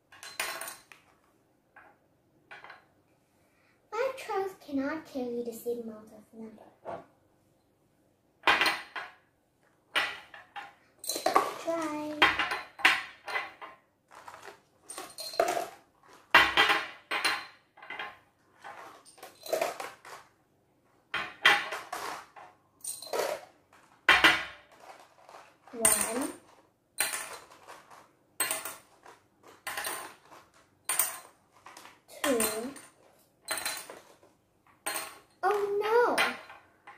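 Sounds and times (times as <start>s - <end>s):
glass jars clinking: 11.0s - 13.6s, 14.2s - 15.8s, 22.8s - 23.4s, 25.8s - 26.4s, 32.1s - 34.1s.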